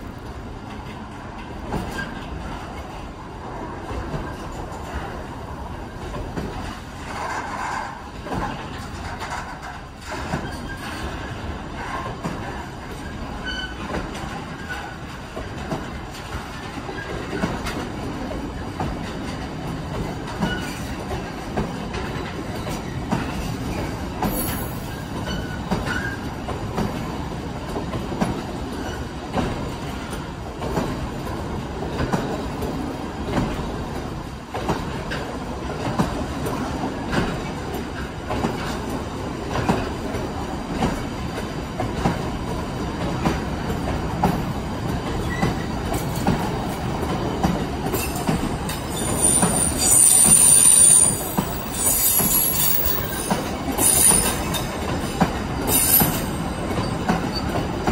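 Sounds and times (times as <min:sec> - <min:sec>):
train wheels rumbling on rail: 0:00.0 - 0:57.9
wheels clicking over rail joints: 0:05.9 - 0:57.9
faint wheel squeals: 0:48.9 - 0:54.6.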